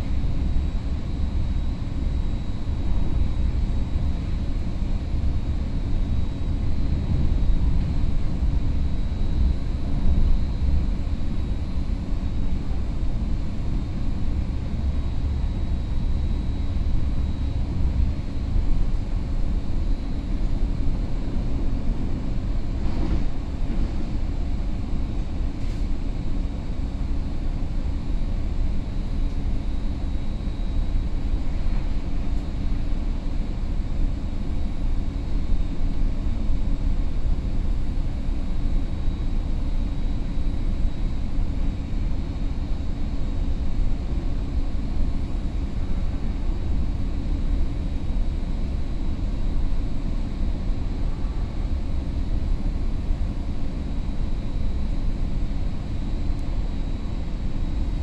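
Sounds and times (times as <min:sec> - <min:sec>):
train wheels rumbling on rail: 0:06.6 - 0:08.9, 0:21.2 - 0:26.0, 0:31.4 - 0:32.8.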